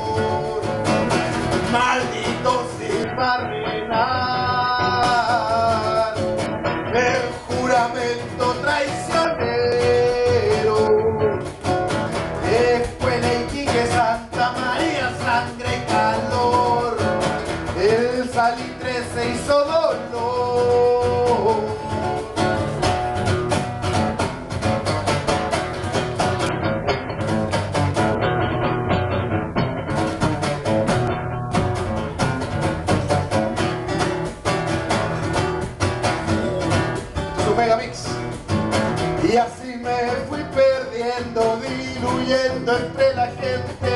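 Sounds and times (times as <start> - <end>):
man singing: 0.0 - 22.8, 36.1 - 43.9
acoustic guitar strumming: 0.0 - 43.9.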